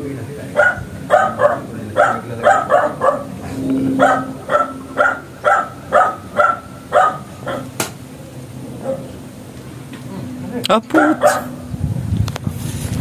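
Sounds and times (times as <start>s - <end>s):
dog barking: 0.5s - 3.4s, 4.0s - 7.8s, 8.8s - 9.1s, 10.9s - 11.6s.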